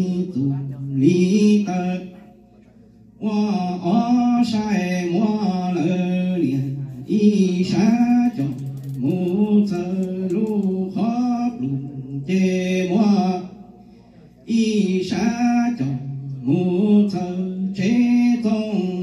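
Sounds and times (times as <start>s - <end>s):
breaths: 13.7s - 14.4s.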